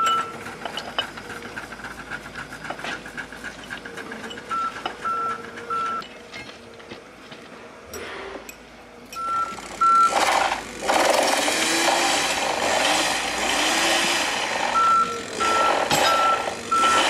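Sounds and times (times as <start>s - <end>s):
reversing alarm beeping: 4.5s - 6.1s, 9.2s - 10.2s, 14.7s - 17.0s
metal tools clinking: 15.1s - 16.5s.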